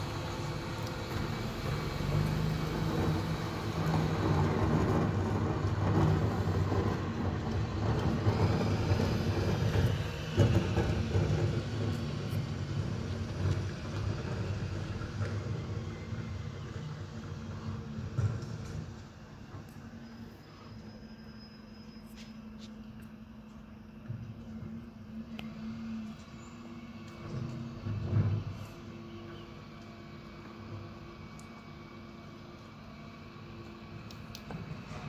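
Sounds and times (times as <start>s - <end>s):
diesel engine running: 0.0s - 20.4s.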